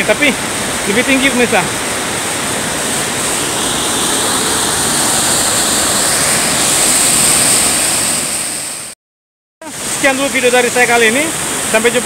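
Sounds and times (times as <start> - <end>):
waterfall rushing: 0.0 - 8.9, 9.7 - 12.0.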